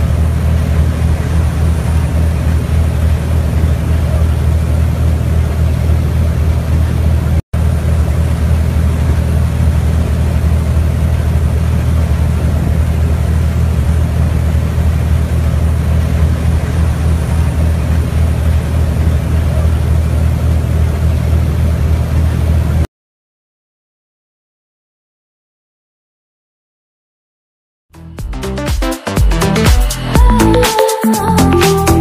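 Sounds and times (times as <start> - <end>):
boat engines droning: 0.0 - 22.8, 29.4 - 32.0.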